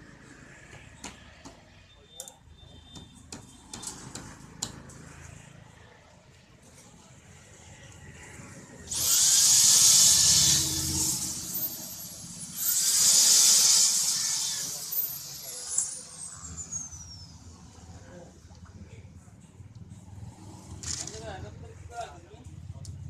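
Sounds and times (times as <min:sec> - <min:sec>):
electric drill whining: 0:08.9 - 0:17.3.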